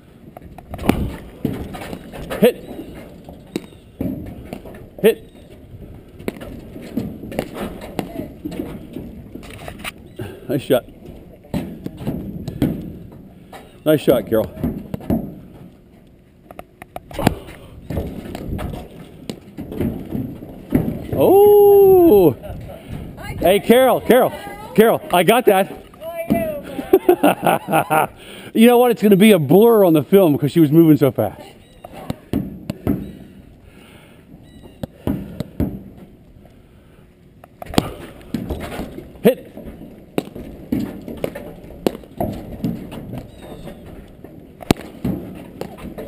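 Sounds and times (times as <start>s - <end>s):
paddles striking ball: 37.4s - 46.0s.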